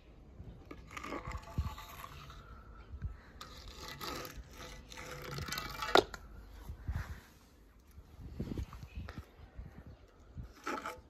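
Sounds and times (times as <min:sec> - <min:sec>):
toy cars scraping: 0:00.5 - 0:06.4, 0:10.4 - 0:11.0.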